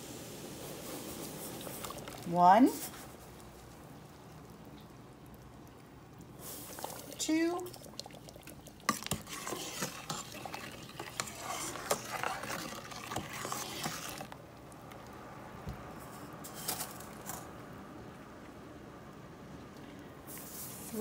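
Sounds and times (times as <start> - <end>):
spoon scraping and clinking in pot: 8.9 - 14.4.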